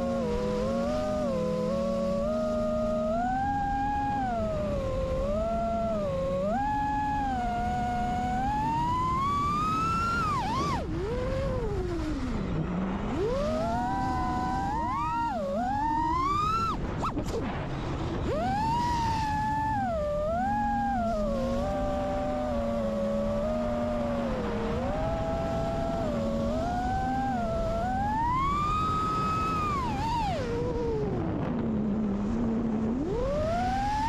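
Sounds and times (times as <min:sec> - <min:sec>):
drone motors whining: 0:00.0 - 0:34.0
wind rumble on microphone: 0:00.0 - 0:34.0.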